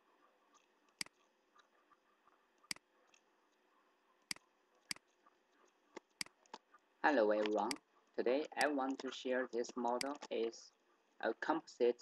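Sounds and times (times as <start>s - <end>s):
computer mouse clicking: 0.5s - 1.7s, 2.6s - 3.6s, 4.2s - 9.1s, 9.7s - 10.5s.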